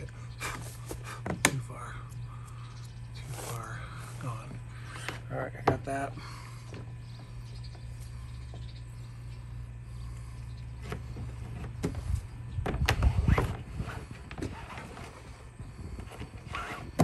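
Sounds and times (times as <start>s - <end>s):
steady low hum: 0.0s - 17.0s
bungee cord rubbing against hull: 12.9s - 17.0s.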